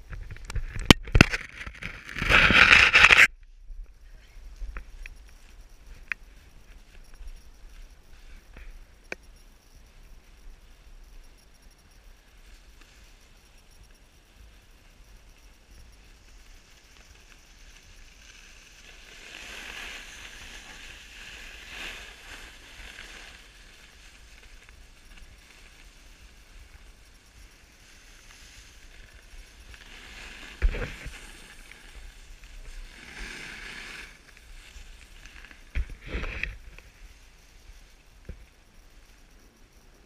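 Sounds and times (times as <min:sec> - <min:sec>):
snowboard scraping on snow: 0:01.8 - 0:03.3, 0:17.6 - 0:26.1, 0:27.9 - 0:37.2.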